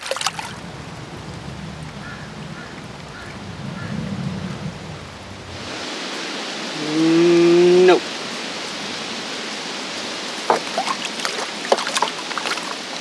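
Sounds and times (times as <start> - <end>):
creek water flowing: 0.0 - 13.0
water splashes: 0.0 - 13.0
man humming: 6.7 - 8.1.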